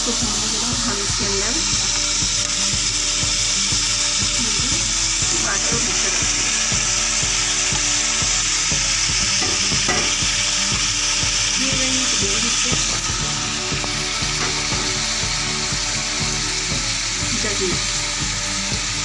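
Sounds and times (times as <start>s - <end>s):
food sizzling in a pot: 0.0s - 19.0s
spatula knocking against pot: 9.3s - 10.3s.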